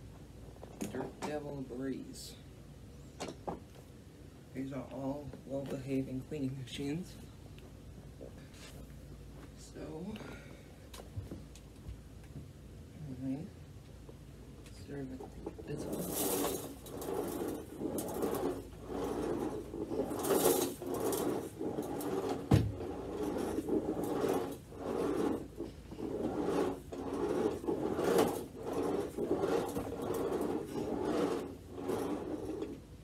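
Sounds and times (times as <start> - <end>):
carpet sweeper brush rasping: 15.7 - 33.0.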